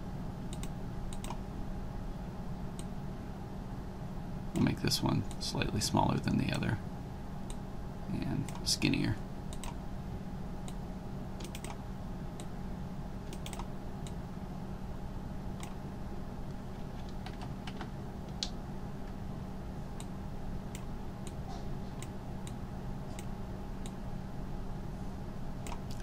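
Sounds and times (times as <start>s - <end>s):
low electrical hum: 0.0s - 26.0s
mouse and keyboard clicks: 11.4s - 11.8s, 13.3s - 13.7s.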